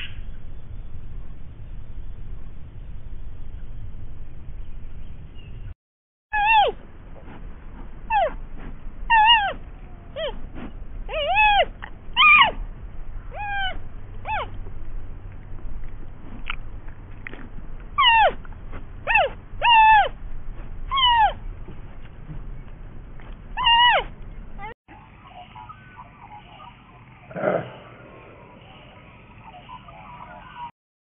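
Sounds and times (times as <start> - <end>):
animal calling: 6.3 - 6.8, 8.1 - 8.4, 9.1 - 10.4, 11.1 - 12.6, 13.3 - 14.6, 18.0 - 20.2, 20.9 - 21.4, 23.6 - 24.7, 25.3 - 30.7.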